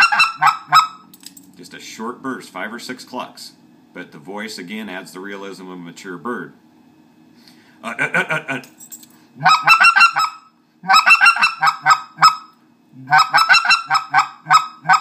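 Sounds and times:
goose call clucking: 0.0s - 1.0s, 9.4s - 15.0s.

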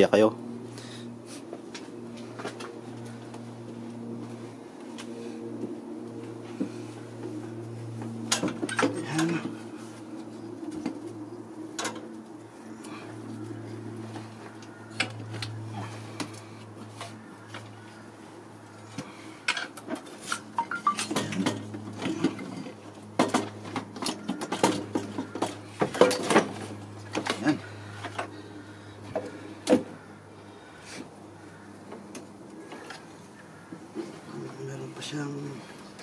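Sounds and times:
steady low hum: 0.0s - 36.0s
metal tools clinking: 19.5s - 22.3s.

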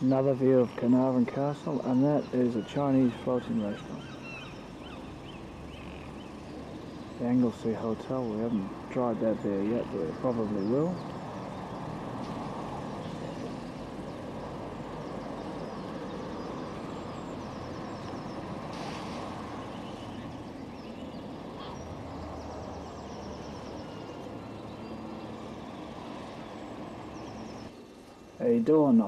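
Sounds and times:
distant road traffic rumble: 0.0s - 29.0s.

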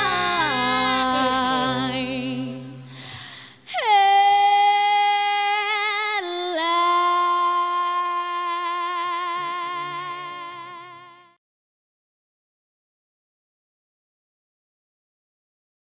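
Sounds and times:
woman singing long note: 0.0s - 11.4s.

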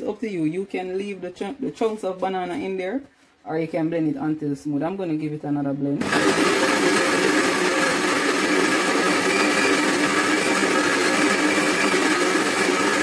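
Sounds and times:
blender motor running: 6.0s - 13.0s.

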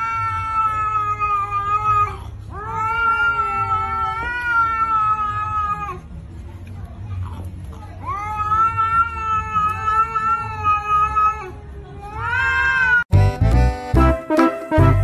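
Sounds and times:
cat yowling: 0.0s - 6.1s, 8.0s - 13.1s
upbeat music: 13.1s - 15.0s.

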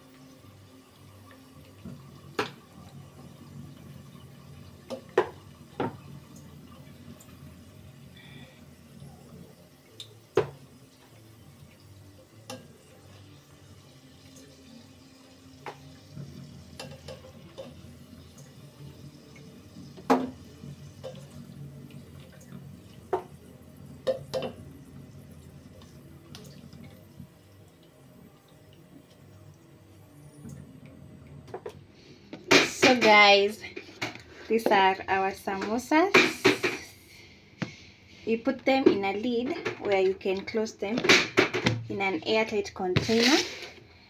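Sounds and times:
hot oil bubbling: 0.0s - 34.0s.

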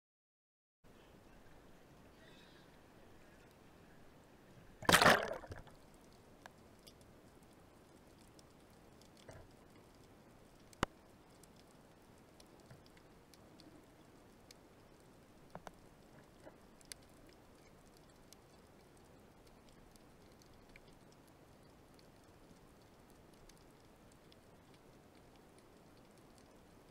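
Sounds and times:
water splash and gurgle: 4.8s - 5.8s
sharp underwater clicks: 4.8s - 26.9s.

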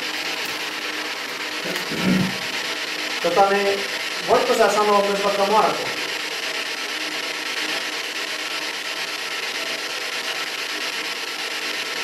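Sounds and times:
radio static flickering: 1.6s - 2.8s.

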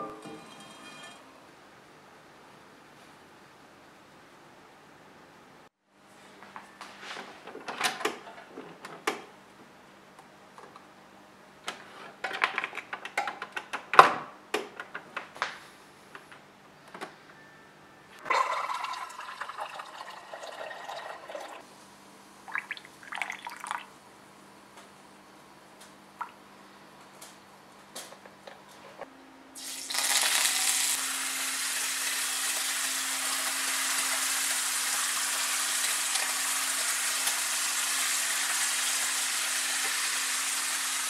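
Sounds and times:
hot water running into cup: 18.3s - 21.6s, 29.6s - 41.0s
short pouring sounds: 18.3s - 21.6s.

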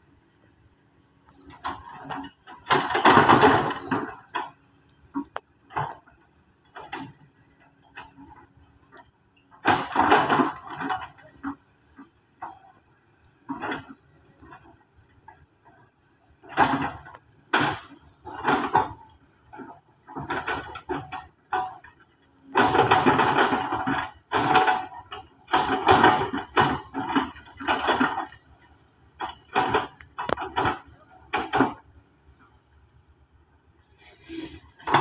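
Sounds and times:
excavator bucket scraping rock: 34.0s - 35.0s.

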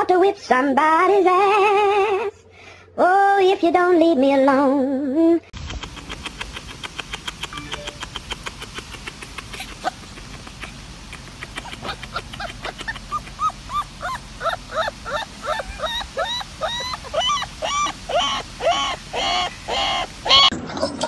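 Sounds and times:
puppy whimpering and yelping: 5.9s - 20.5s.

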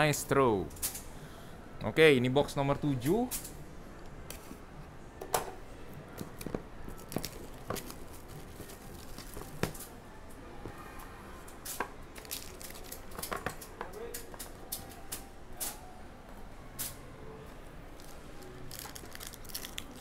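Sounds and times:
cellophane tearing and crinkling: 6.4s - 9.9s, 12.1s - 13.6s, 18.0s - 20.0s
foil packs rustling: 7.0s - 9.9s.

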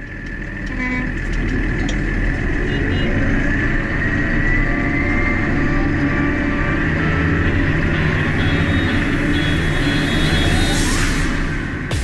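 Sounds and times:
tractor engine running: 0.0s - 4.5s.

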